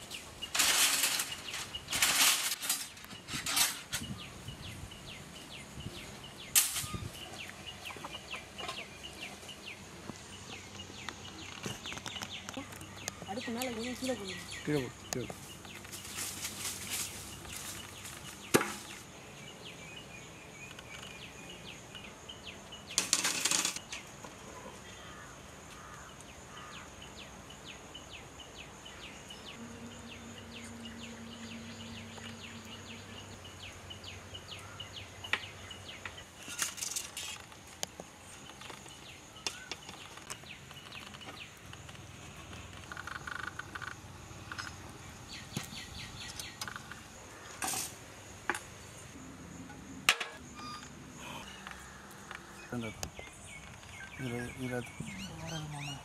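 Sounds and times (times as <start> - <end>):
rustling: 0.0 - 4.1, 15.2 - 19.1
ticking chirps: 35.2 - 47.2.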